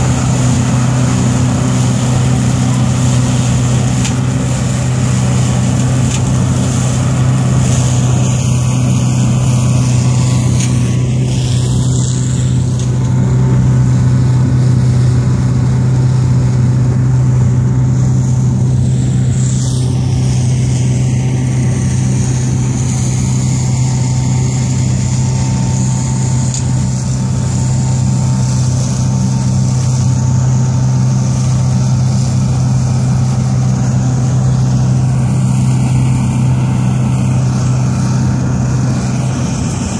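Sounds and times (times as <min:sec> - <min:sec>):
tractor and mower drone: 0:00.0 - 0:39.9.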